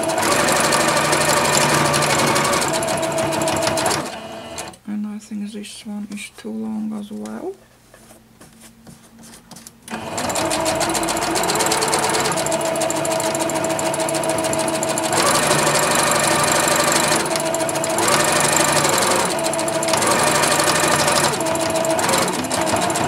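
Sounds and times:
sewing machine stitching: 0:00.0 - 0:04.8, 0:09.9 - 0:23.0.

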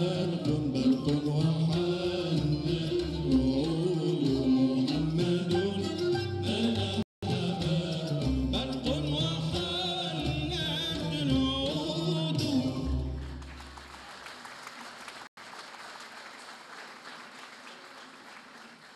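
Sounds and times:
ensemble with male chorus: 0:06.4 - 0:13.0
audience applause: 0:13.0 - 0:18.9.

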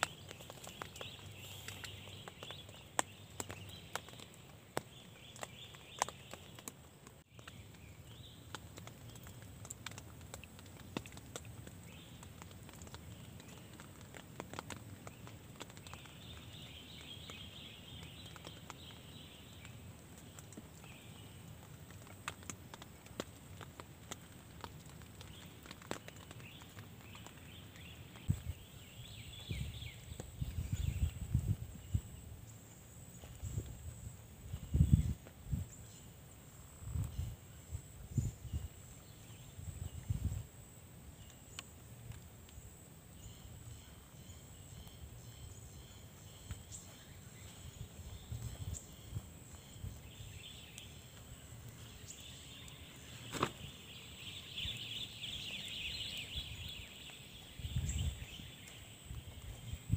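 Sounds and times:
water drops tapping on tent fabric: 0:00.0 - 0:31.2, 0:46.1 - 0:59.6.

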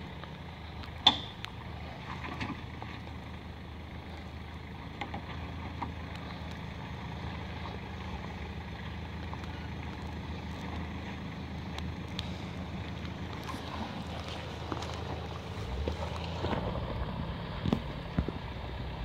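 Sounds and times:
suv engine running low: 0:00.0 - 0:19.0
stones clacking under tyres: 0:04.0 - 0:18.6.

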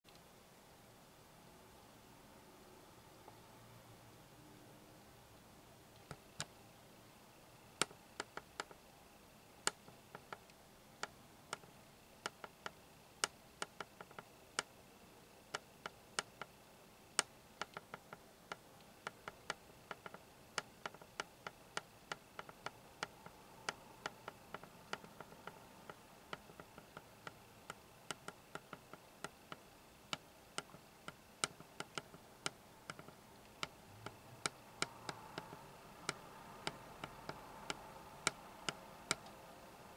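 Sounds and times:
faint steady hiss: 0:00.1 - 0:39.9
irregular sharp clicks: 0:07.8 - 0:08.8, 0:09.6 - 0:14.8, 0:17.1 - 0:39.7.

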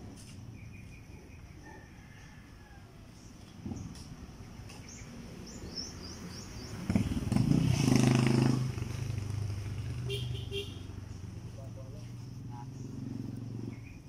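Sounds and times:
motorcycle engine passing by: 0:04.9 - 0:14.0.

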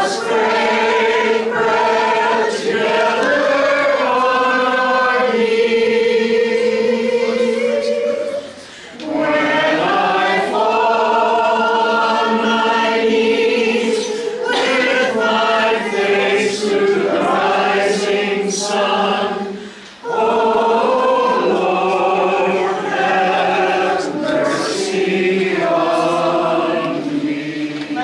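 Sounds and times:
congregation singing a hymn: 0:00.0 - 0:28.0
short breath: 0:08.6 - 0:09.0, 0:19.6 - 0:20.0.

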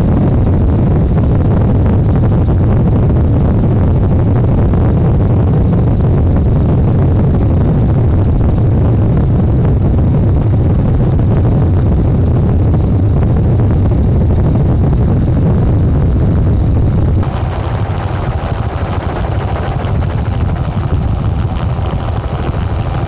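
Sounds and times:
noisy wash: 0:05.1 - 0:23.0
low engine rumble: 0:05.2 - 0:23.0.

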